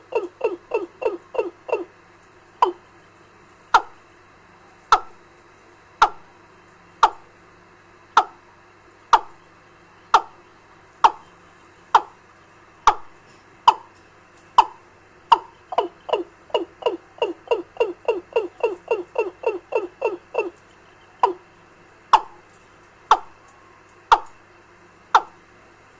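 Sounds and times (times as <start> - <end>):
recorded fowl call through speaker: 0.0 - 2.0, 2.6 - 2.9, 3.8 - 4.0, 7.0 - 7.3, 11.9 - 12.2, 12.8 - 13.9, 14.6 - 21.5, 23.1 - 24.4, 25.1 - 25.4.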